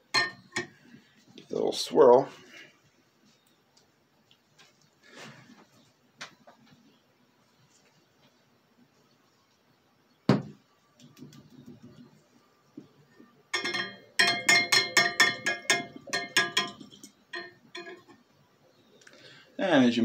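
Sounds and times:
stir bar rattling in glass funnel: 13.6 - 18.2.

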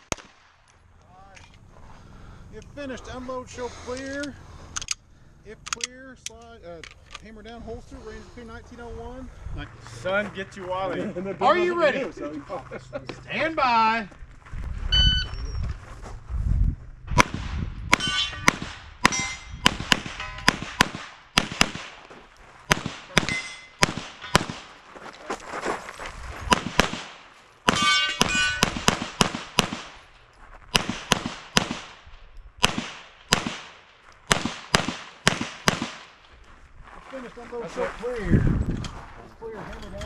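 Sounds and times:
shot timer beep: 14.9 - 15.6
pistol firing quick double shots: 17.2 - 22.0, 22.7 - 24.7, 26.5 - 30.0, 30.7 - 32.0, 32.6 - 36.1
metallic ringing of steel targets: 17.9 - 20.6, 23.2 - 24.5, 27.7 - 28.8.

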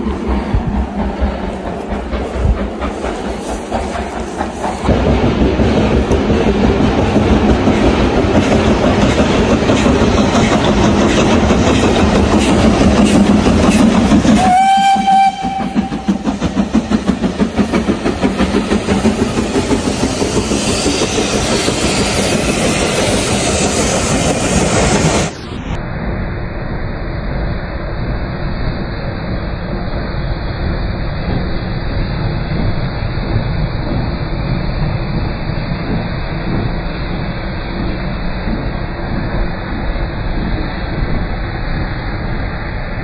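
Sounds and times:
steam locomotive chuffing: 0.0 - 25.6, 28.5 - 43.0
wheels rumbling on rails: 0.0 - 43.0
steam whistle blast: 14.3 - 16.2.

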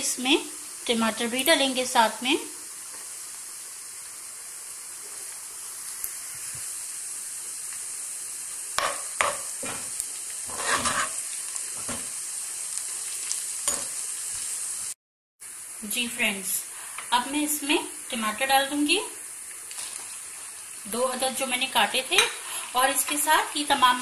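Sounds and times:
onions sizzling in hot oil: 0.0 - 24.0
wooden spatula scraping pan: 10.5 - 11.2.

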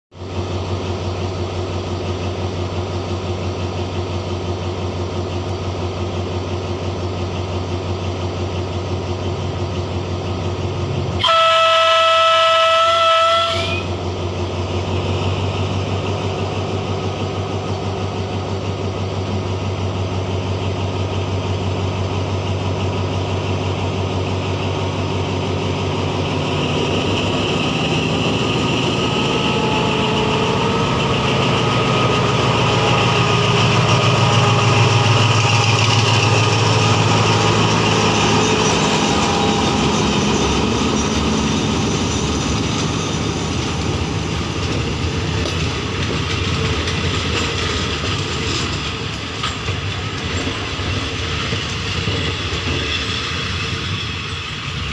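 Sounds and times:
diesel locomotive engine drone: 0.1 - 54.9
train coaches rolling on rails: 0.2 - 54.9.

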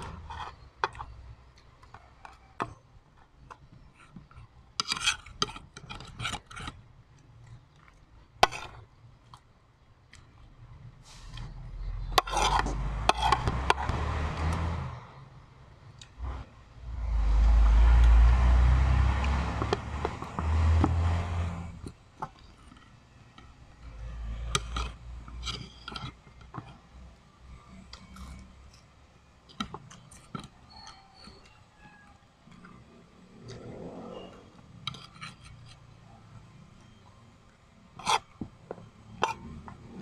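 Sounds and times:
spoon scraping on a plate: 12.0 - 13.9, 34.0 - 36.0, 38.0 - 38.4, 39.0 - 39.9
chewing: 27.8 - 28.9.

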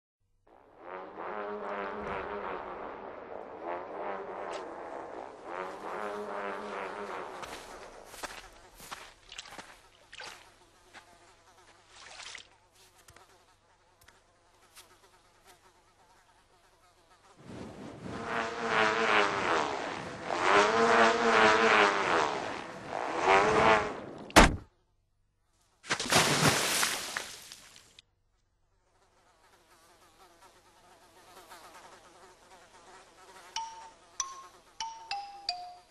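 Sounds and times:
flies buzzing: 0.5 - 24.8, 28.6 - 35.9
faint ticks: 14.0 - 15.0
bright chime notes: 33.6 - 35.9.

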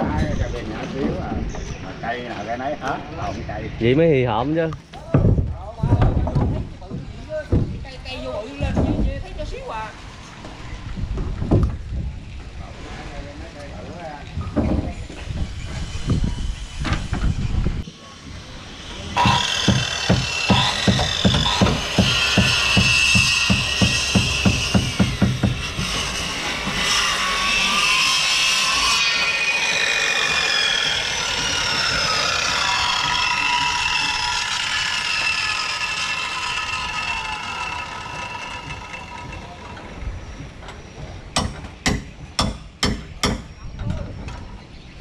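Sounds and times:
circular saw cutting wood: 14.9 - 40.4
sharp knocks: 19.2 - 26.9, 41.4 - 43.5.

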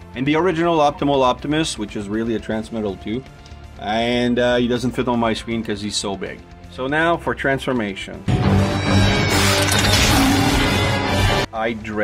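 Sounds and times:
loud cartoon music: 8.3 - 11.5.

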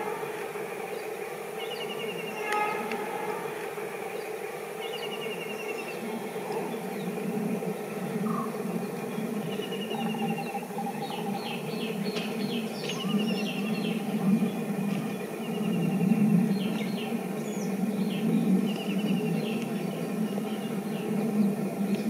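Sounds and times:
birds chirping and trilling: 0.0 - 22.0
passenger train rumbling: 0.0 - 22.0.

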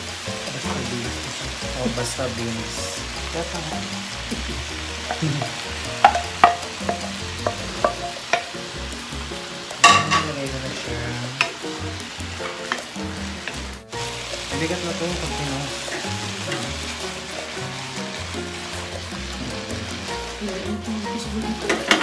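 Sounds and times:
vegetables sizzling in a wok: 0.0 - 22.0
spatula knocking and scraping pan: 3.7 - 10.5, 11.4 - 20.2.

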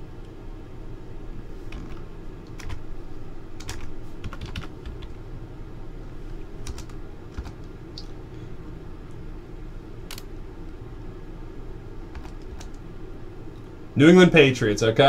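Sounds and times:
steady low hum: 0.0 - 15.0
keyboard typing clicks: 1.7 - 2.8, 3.6 - 5.2, 6.6 - 8.1, 12.1 - 12.8.

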